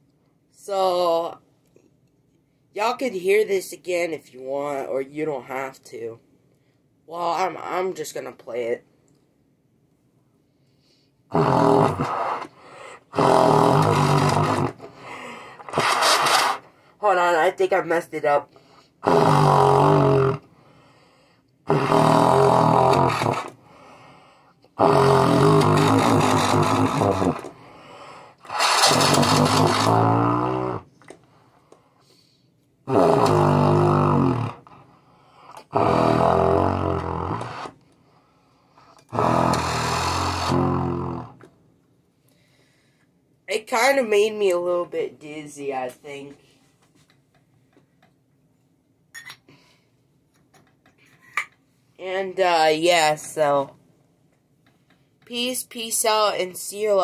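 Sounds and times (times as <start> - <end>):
trumpet low buzzing blasts: 24.8 - 27.5, 28.5 - 30.9, 39.1 - 41.3.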